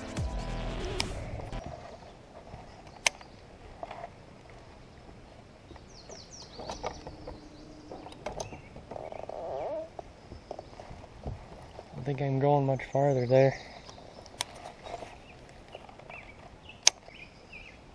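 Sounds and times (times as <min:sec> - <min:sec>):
small bird chirps: 0:05.7 - 0:11.0.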